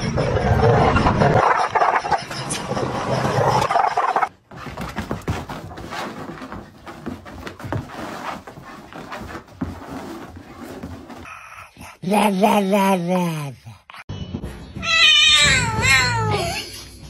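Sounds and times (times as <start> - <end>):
dog scuffling on carpet: 4.5 - 11.3.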